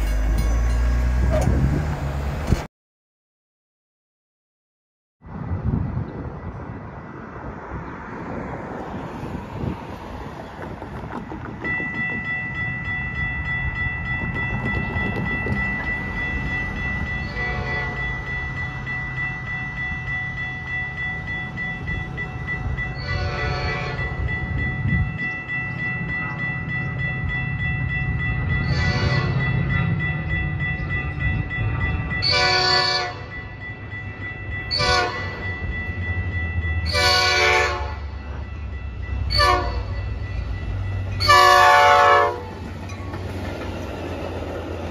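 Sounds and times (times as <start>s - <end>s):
crossing warning bell ringing: 0.0s - 1.6s, 11.1s - 44.9s
train rumble: 0.0s - 2.7s, 5.2s - 44.9s
locomotive horn blasts: 17.3s - 18.1s, 23.0s - 24.2s, 28.7s - 29.4s, 32.2s - 33.3s, 34.7s - 35.4s, 36.8s - 38.1s, 39.3s - 40.0s, 41.2s - 42.6s.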